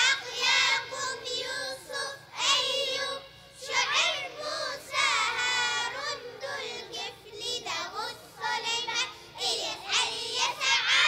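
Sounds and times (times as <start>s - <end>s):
child chanting: 0.0s - 11.0s.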